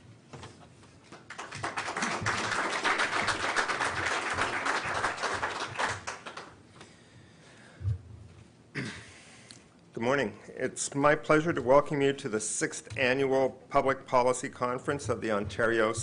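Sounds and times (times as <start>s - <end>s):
audience applauding: 1.2s - 6.5s.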